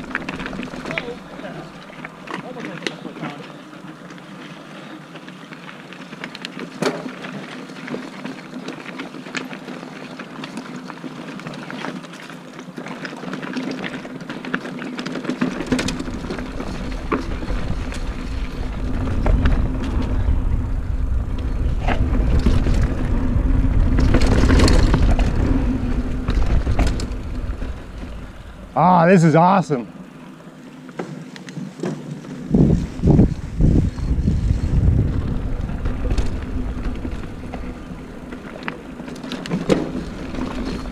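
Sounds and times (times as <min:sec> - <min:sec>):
bike knocks and rattles: 0:06.1 - 0:09.8, 0:10.4 - 0:28.7, 0:30.9 - 0:40.9
low rumble: 0:16.2 - 0:28.8, 0:32.5 - 0:38.4.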